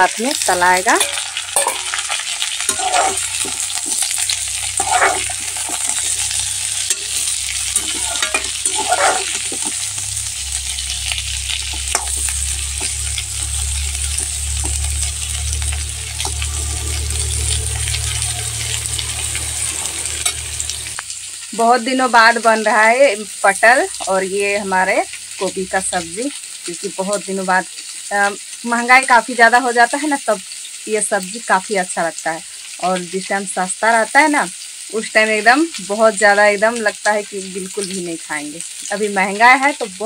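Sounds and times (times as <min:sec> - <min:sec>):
vegetables sizzling in oil: 0:00.0 - 0:40.0
low hum: 0:02.7 - 0:21.0.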